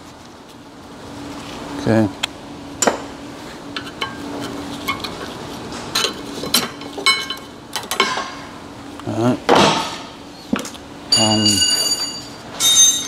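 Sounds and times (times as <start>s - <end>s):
sharp ringing metal knocks: 11.1s - 13.0s.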